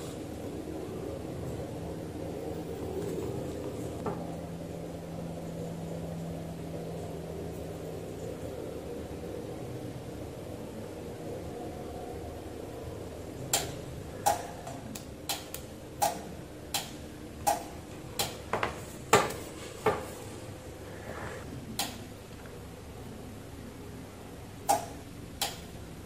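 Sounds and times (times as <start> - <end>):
low steady hum: 0.0 - 26.0
sharp plastic clicks and taps: 13.5 - 18.4, 24.6 - 25.6.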